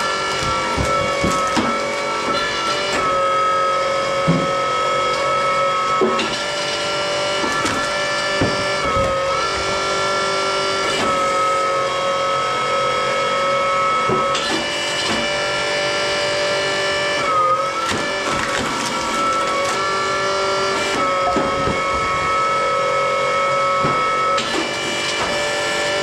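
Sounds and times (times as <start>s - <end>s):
wood cracking as split: 0.0s - 3.2s, 6.3s - 9.8s, 17.3s - 21.9s
hydraulic pump motor whining: 0.0s - 26.0s.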